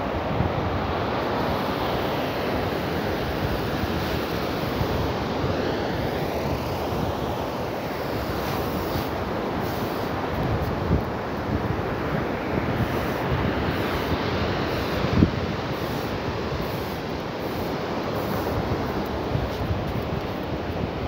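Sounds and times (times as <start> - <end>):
wind buffeting microphone: 8.2 - 21.0.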